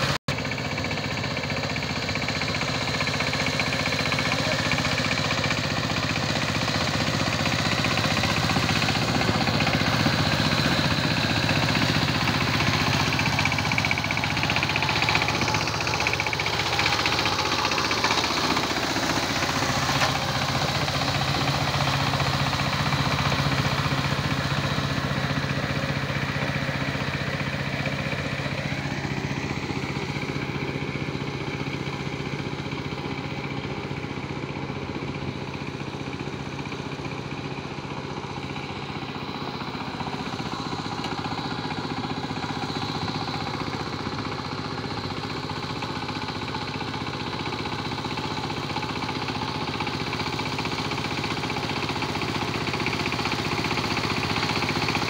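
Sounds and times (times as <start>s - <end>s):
power tiller diesel engine: 0.0s - 55.0s.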